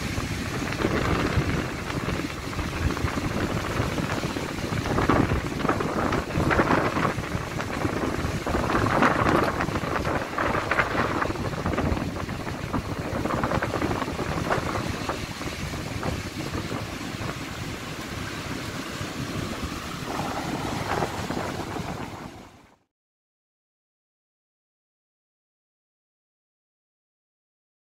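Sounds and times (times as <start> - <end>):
waves breaking on beach: 0.0 - 22.8
wind gusting against microphone: 0.0 - 22.8.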